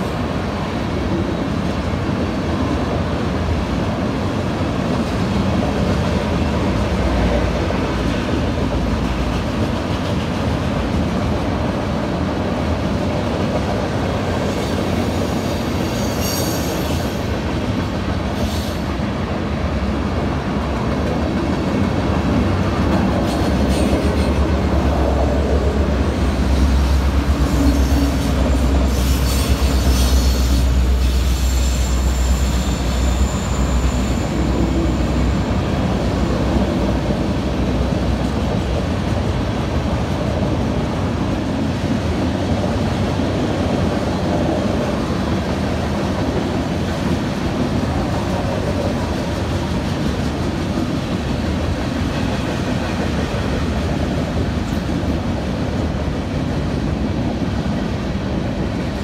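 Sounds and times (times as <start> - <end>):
train wheels rumbling on rail: 0.0 - 59.0
wheels squealing: 26.9 - 35.6.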